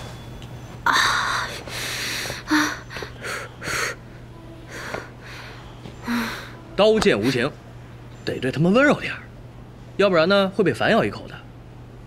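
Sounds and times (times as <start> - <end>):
woman gasping and hissing in pain: 0.9 - 4.0
woman whimpering: 0.9 - 4.0.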